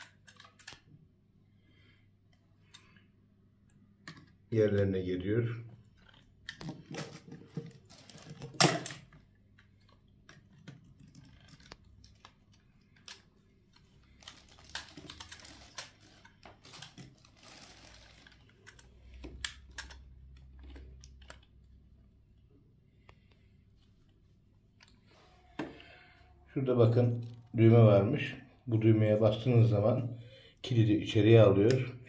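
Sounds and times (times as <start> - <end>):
plastic parts clicking and knocking: 0.0 - 1.0, 3.7 - 4.9, 5.8 - 21.9
rustling: 10.9 - 18.6.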